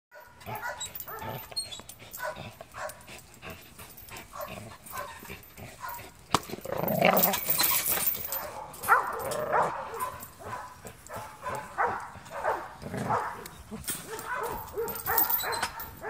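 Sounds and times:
dog whining and yipping: 0:00.4 - 0:02.4, 0:13.2 - 0:16.0.

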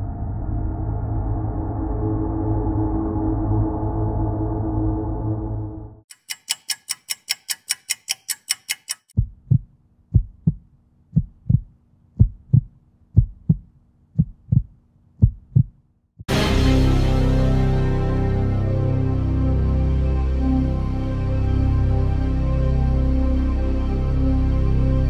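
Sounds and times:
fast clock ticking: 0:06.1 - 0:10.6
heartbeat thumps: 0:09.2 - 0:16.3
gong-like tone: 0:16.3 - 0:19.7
loud music: 0:16.3 - 0:23.2.

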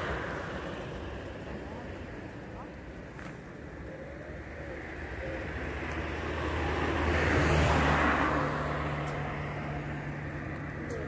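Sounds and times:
car driving past: 0:05.5 - 0:11.0.

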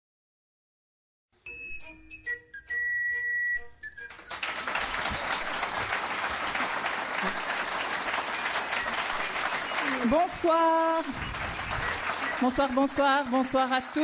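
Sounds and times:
audience applause: 0:04.0 - 0:14.0.

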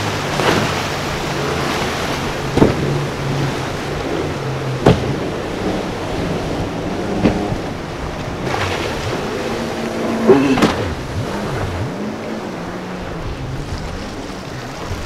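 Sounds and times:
churning water and surf: 0:00.0 - 0:15.0
jet ski engine revving: 0:00.0 - 0:15.0
motorboat engines: 0:00.0 - 0:15.0
sharp water slaps: 0:00.2 - 0:00.9, 0:01.7 - 0:03.0, 0:04.7 - 0:05.3, 0:09.8 - 0:11.9.

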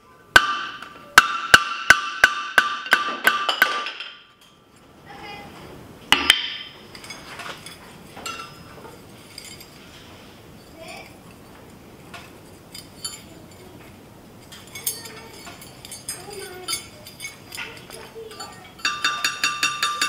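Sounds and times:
steel tool clinking on anvil: 0:06.4 - 0:08.7, 0:12.7 - 0:13.7, 0:14.4 - 0:20.0.

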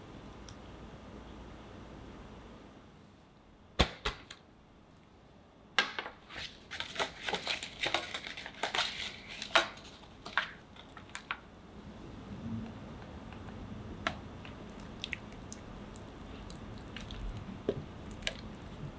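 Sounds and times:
parchment paper crinkling: 0:06.3 - 0:11.4.

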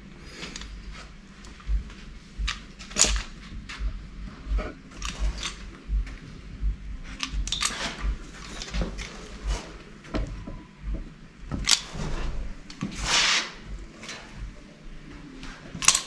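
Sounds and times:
sharp clicks and clunks: 0:02.4 - 0:03.9, 0:07.2 - 0:12.9.

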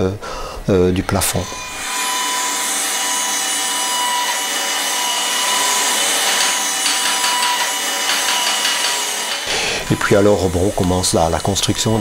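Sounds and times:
table saw cutting wood: 0:00.6 - 0:12.0.

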